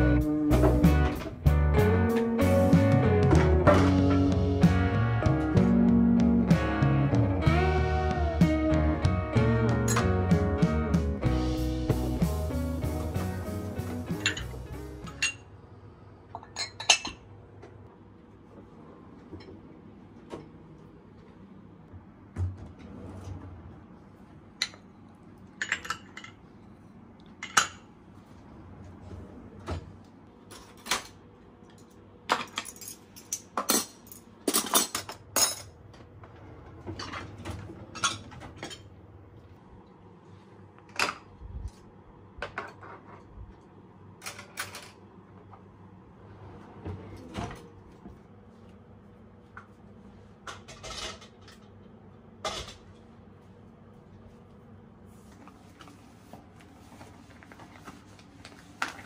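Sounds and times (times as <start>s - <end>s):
cups and utensils clinking: 14.1s - 15.5s, 16.3s - 17.3s, 25.6s - 26.4s.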